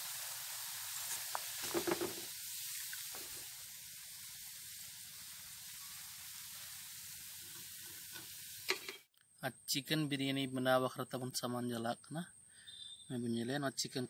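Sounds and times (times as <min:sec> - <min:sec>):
onions sizzling in hot oil: 0:00.0 - 0:09.0.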